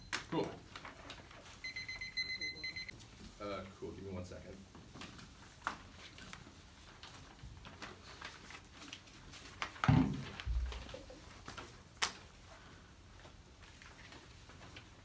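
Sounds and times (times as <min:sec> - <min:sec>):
paper sheets being handled: 0:00.1 - 0:01.7, 0:04.6 - 0:15.0.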